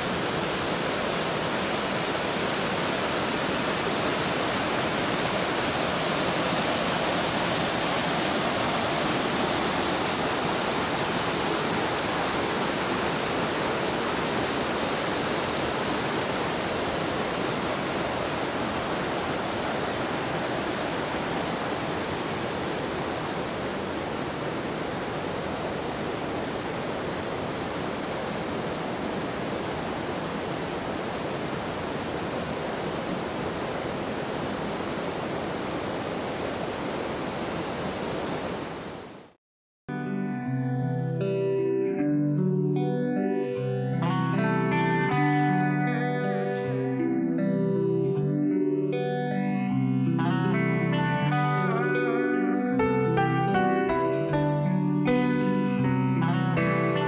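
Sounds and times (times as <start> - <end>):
creek rushing over boulders: 0.0 - 39.4.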